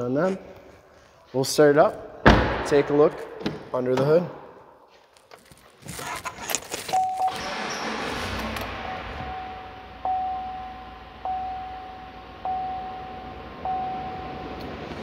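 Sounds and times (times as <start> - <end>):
engine cranking and idling: 6.9 - 10.0
dashboard warning chime: 7.0 - 7.5, 8.8 - 14.8.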